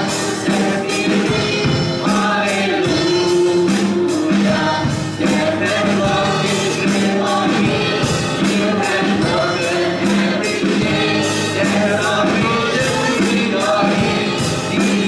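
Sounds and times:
congregation singing along: 0.0s - 15.0s
instrumental accompaniment: 0.0s - 15.0s
man singing into a microphone: 0.8s - 4.4s.

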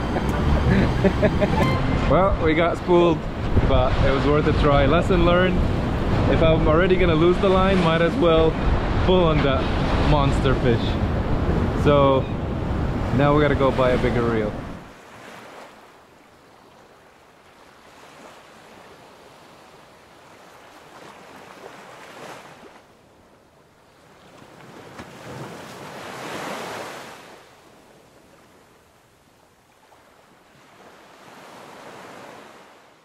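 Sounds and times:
sea waves washing in: 0.0s - 23.0s, 23.6s - 33.0s.

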